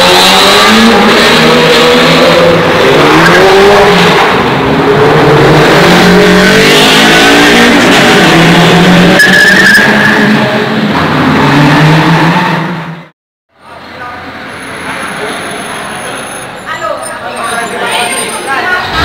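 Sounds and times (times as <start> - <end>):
car engine revving high: 0.0 - 12.9.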